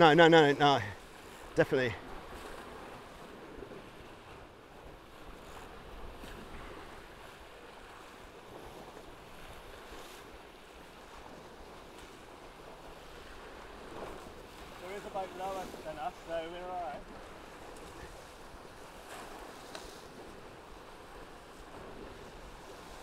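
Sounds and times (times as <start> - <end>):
water rushing: 0.0 - 2.1, 12.8 - 23.0
wind: 0.0 - 23.0.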